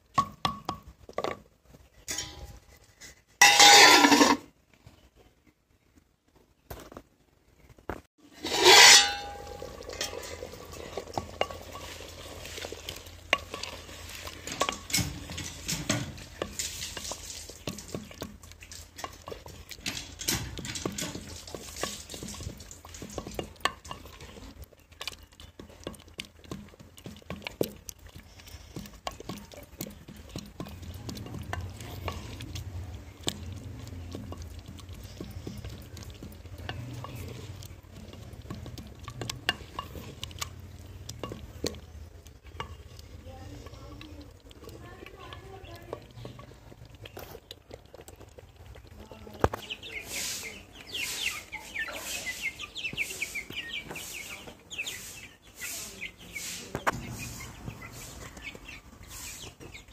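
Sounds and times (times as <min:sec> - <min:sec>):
ladle scraping and knocking pot: 0:00.0 - 0:04.5, 0:08.2 - 0:54.4
metal lid clanging: 0:02.1 - 0:02.6, 0:03.4 - 0:04.4, 0:08.3 - 0:10.6.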